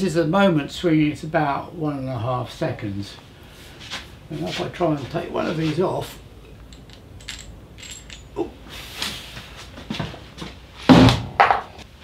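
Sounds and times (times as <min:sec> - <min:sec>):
light metallic clinks and taps: 0:06.6 - 0:08.4.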